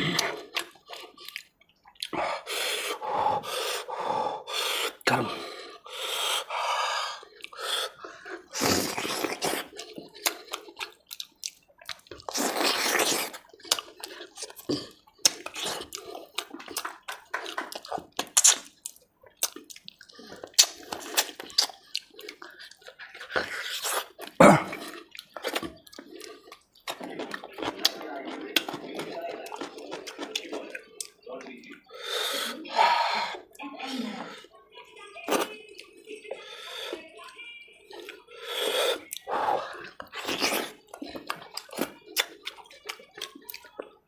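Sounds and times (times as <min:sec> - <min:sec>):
slurping: 0:00.0 - 0:33.6, 0:37.9 - 0:44.0
wet chewing: 0:00.0 - 0:33.7, 0:35.2 - 0:44.0
lip smacks: 0:07.2 - 0:31.9, 0:37.9 - 0:43.9.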